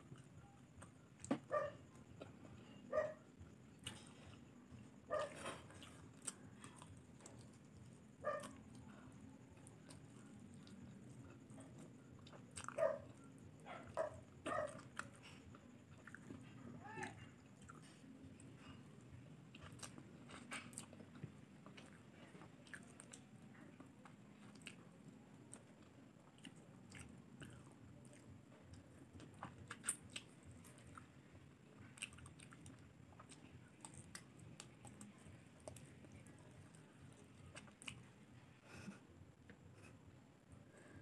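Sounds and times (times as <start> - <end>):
close-up chewing and biting: 9.5 - 13.2, 19.5 - 24.9, 25.5 - 38.1.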